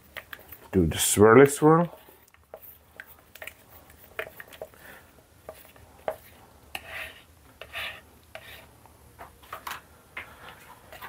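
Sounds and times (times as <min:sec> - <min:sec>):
stir stick scraping cup: 0:00.0 - 0:04.8, 0:05.4 - 0:08.7.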